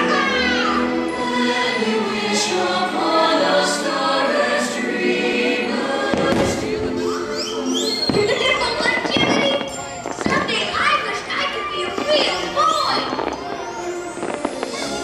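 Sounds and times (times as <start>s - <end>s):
choir singing over orchestral music: 0.0s - 8.2s.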